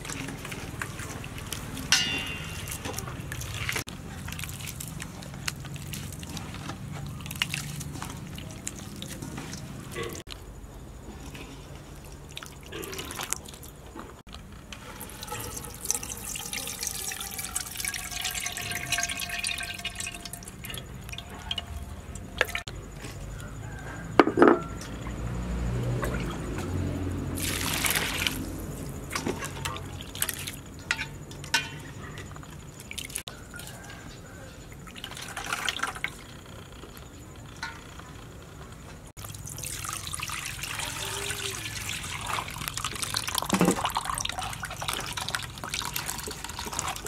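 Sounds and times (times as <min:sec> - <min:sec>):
hands squeezing wet flour: 0:00.0 - 0:10.3, 0:11.2 - 0:13.9, 0:14.7 - 0:22.7, 0:27.4 - 0:30.6, 0:39.2 - 0:47.0
water sloshing in metal bowl: 0:00.0 - 0:10.3, 0:11.2 - 0:14.1, 0:14.7 - 0:22.7, 0:25.9 - 0:36.3, 0:39.2 - 0:47.0
loud splash: 0:27.4 - 0:28.5.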